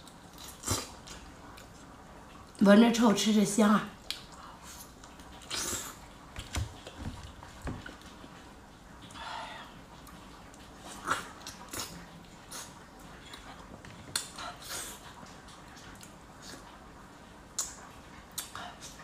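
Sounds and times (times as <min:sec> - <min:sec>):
wet chewing and mouth smacks: 0:10.0 - 0:14.4.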